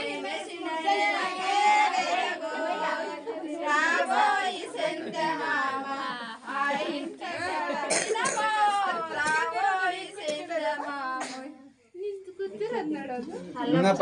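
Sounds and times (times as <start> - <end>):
women singing: 0.0 - 13.3
women talking: 12.0 - 13.6.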